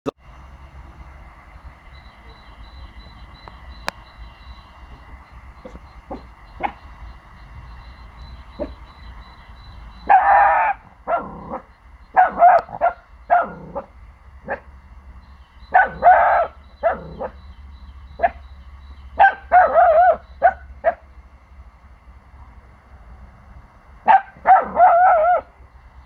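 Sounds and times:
puppy barking and yipping: 0:05.6 - 0:07.0, 0:08.0 - 0:14.7, 0:15.7 - 0:17.4, 0:18.2 - 0:18.4, 0:19.2 - 0:21.0, 0:24.0 - 0:25.5.

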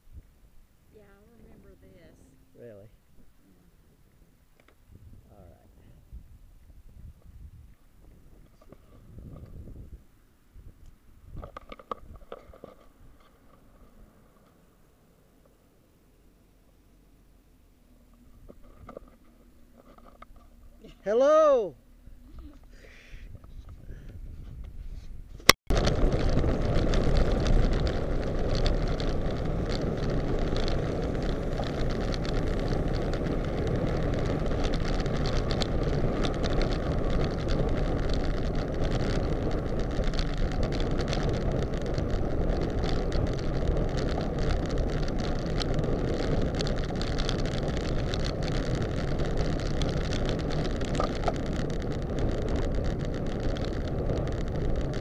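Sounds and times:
tyre and road noise: 0:00.0 - 0:55.0
wind rush on microphone: 0:04.8 - 0:14.2, 0:22.2 - 0:55.0.

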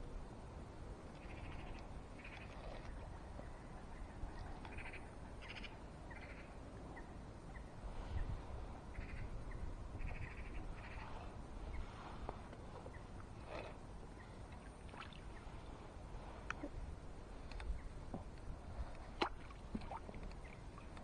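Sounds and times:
wind on microphone: 0:06.6 - 0:21.0.

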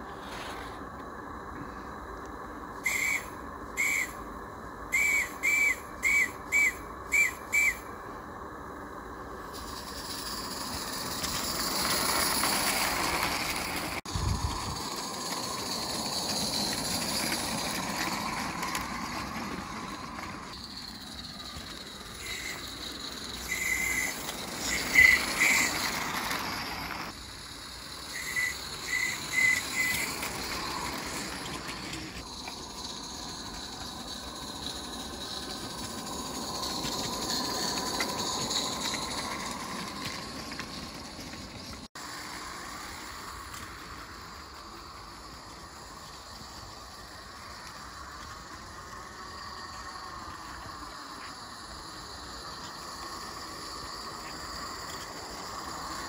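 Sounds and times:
steam locomotive hissing and running: 0:00.0 - 0:56.0
high whistle toots: 0:02.8 - 0:04.3, 0:04.9 - 0:08.0, 0:22.1 - 0:26.1, 0:28.1 - 0:31.1.

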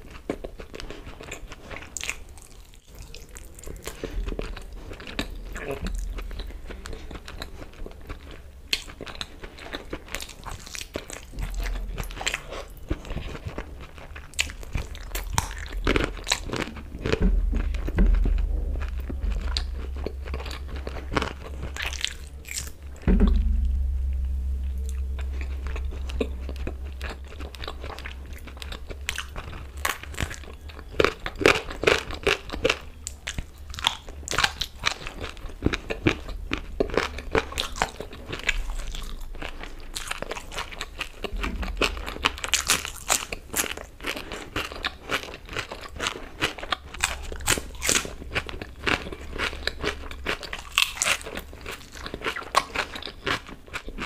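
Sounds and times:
low steady hum: 0:00.0 - 0:54.0
person chewing food: 0:00.0 - 0:54.0.

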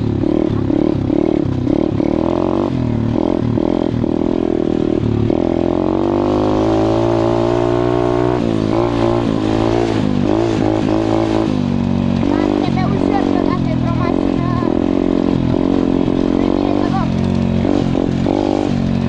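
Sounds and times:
motorbike engine revving: 0:00.0 - 0:19.0.

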